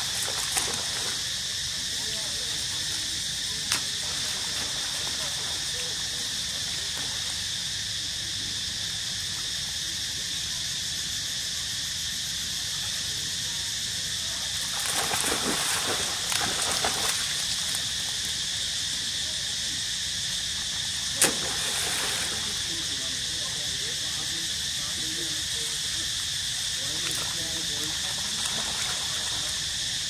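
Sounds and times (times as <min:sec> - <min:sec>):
insects droning: 0:00.0 - 0:30.0.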